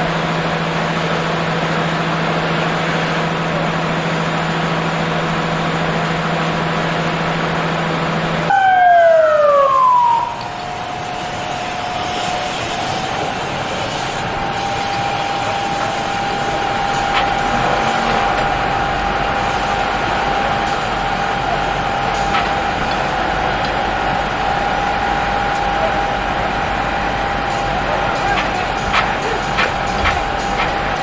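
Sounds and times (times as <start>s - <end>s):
high steady whine: 8.4s - 27.0s.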